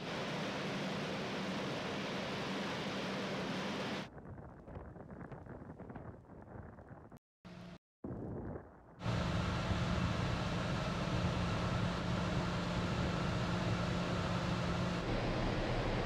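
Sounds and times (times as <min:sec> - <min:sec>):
ferry machinery humming: 0:00.0 - 0:04.1, 0:09.0 - 0:16.0.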